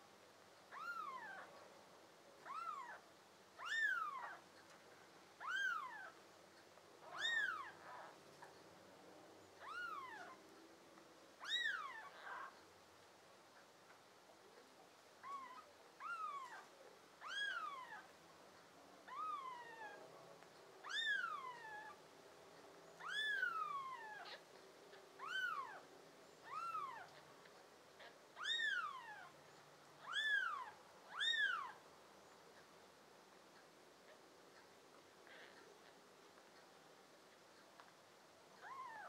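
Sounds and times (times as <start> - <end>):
newborn kittens mewing: 0.7 - 1.5, 2.4 - 3.0, 3.6 - 4.5, 5.4 - 6.2, 7.0 - 8.2, 9.6 - 10.4, 11.4 - 12.6, 15.2 - 18.1, 19.0 - 20.0, 20.8 - 22.0, 23.0 - 24.5, 25.2 - 27.2, 28.0 - 29.4, 30.0 - 31.8, 35.2 - 36.0, 38.6 - 39.0.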